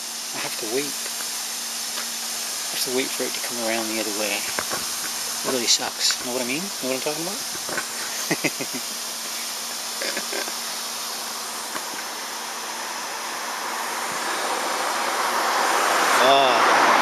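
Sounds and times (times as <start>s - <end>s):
lawn sprinkler spraying water: 0.0s - 17.0s.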